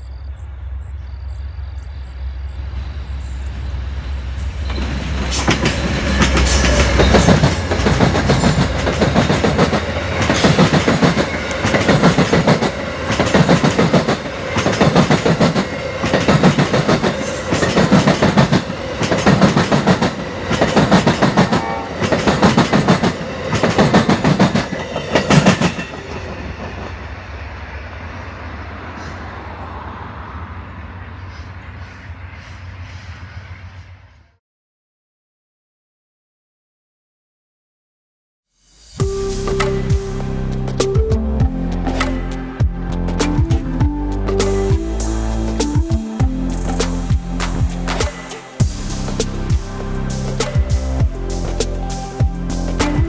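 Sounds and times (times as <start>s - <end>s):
diesel locomotive rumble: 0.3s - 31.9s, 39.0s - 53.0s
train wheels clickety-clack: 4.4s - 27.1s, 45.5s - 53.0s.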